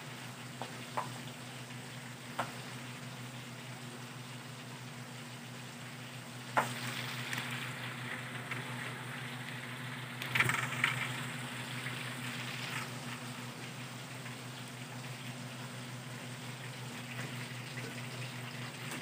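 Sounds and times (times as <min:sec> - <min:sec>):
pork skin sizzling in fat: 0:00.0 - 0:19.0.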